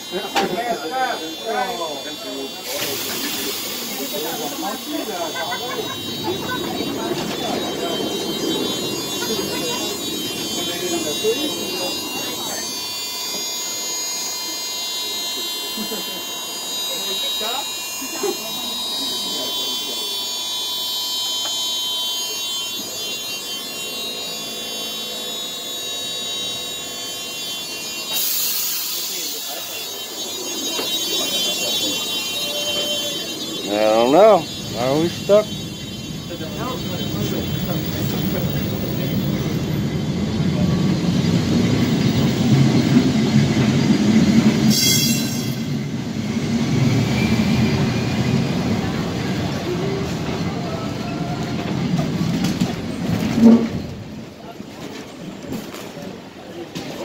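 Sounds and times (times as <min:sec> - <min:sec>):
high-pitched screech: 0:00.0 - 0:51.8
tram whining on rails: 0:00.0 - 0:57.0
loud hiss: 0:02.5 - 0:06.1, 0:27.7 - 0:30.2.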